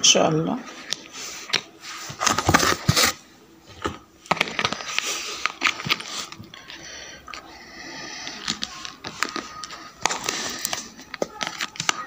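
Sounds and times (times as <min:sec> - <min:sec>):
plastic containers clicking: 0:08.3 - 0:12.0.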